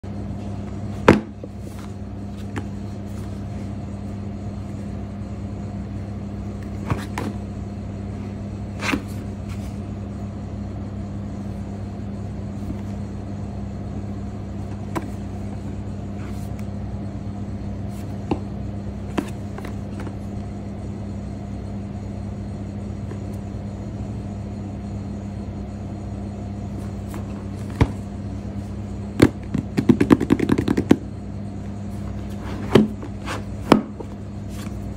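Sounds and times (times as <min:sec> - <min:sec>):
steady low hum: 0:00.0 - 0:34.9
hands tapping cardboard box: 0:29.2 - 0:31.0.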